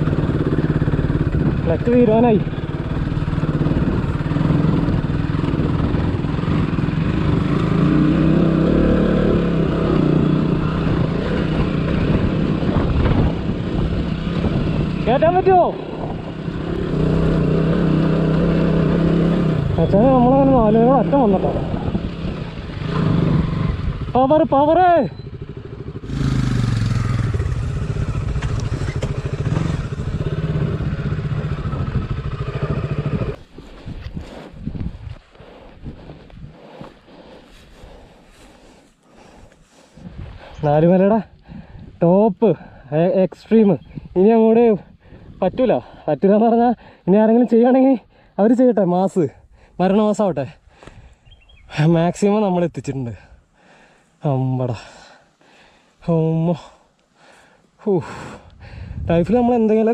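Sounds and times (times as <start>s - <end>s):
motorcycle engine revving: 0.0s - 39.6s.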